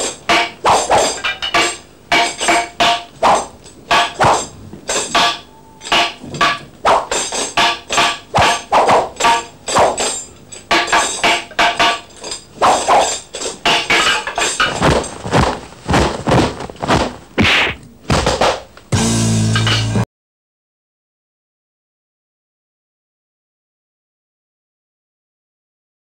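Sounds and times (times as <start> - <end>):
weapon clashes and blows: 0.3 - 18.4.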